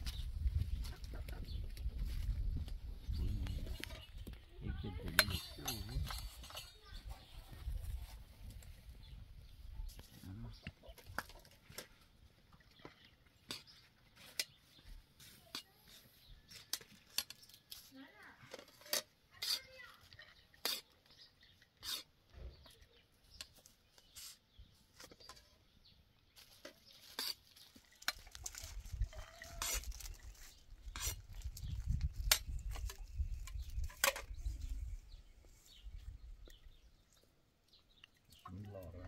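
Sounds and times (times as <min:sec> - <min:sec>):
metal spoon clinking on plates: 0:05.2 - 0:07.0.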